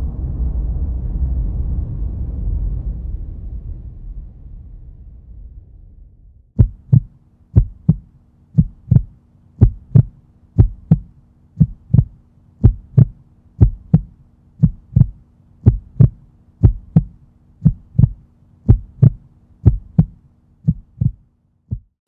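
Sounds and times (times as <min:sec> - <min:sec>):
faint steady hum: 0:06.6 - 0:21.9
heartbeat thumps: 0:06.6 - 0:22.0.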